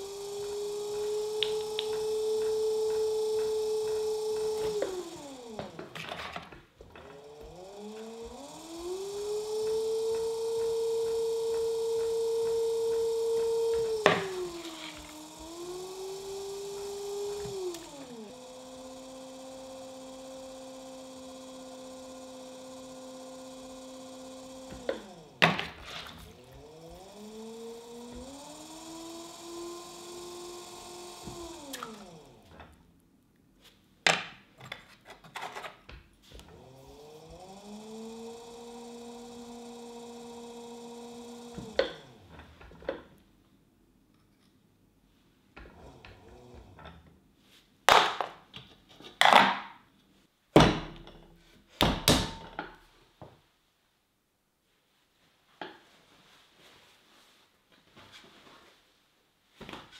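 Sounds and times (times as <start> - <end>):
pottery wheel motor whining: 0.0 - 33.0, 36.2 - 43.2, 45.5 - 47.2.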